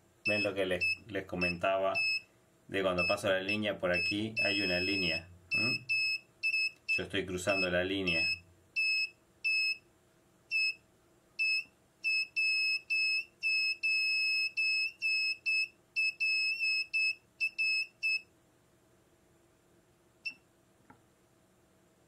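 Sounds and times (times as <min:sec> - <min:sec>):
high-pitched locator beeping: 0:03.0 - 0:08.4.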